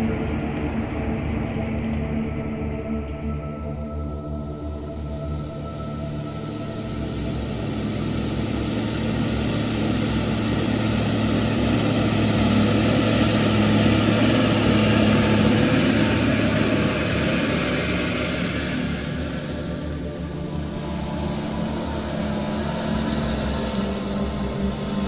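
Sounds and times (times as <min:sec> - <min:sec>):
diesel tractor pulling plough: 0:07.0 - 0:25.0.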